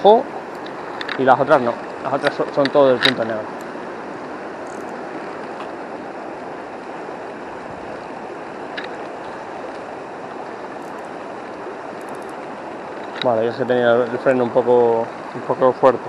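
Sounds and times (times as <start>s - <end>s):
river water flowing: 0.0s - 16.0s
faint ticks: 0.5s - 3.7s, 8.7s - 9.9s, 10.7s - 11.2s, 11.9s - 13.3s.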